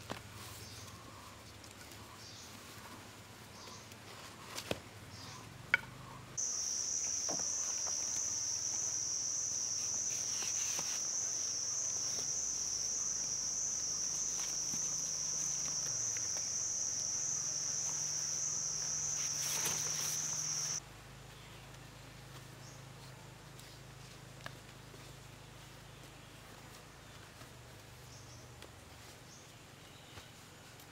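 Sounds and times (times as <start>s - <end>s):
high-pitched insect drone: 6.4s - 20.8s.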